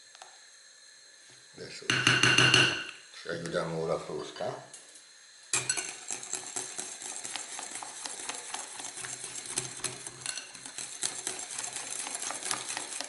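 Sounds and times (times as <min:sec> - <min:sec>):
whisk clicking against bowl: 0:05.6 - 0:13.0.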